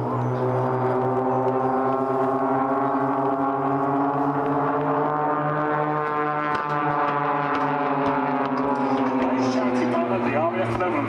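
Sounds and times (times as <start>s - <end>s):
propeller aircraft engines droning: 0.0s - 11.0s.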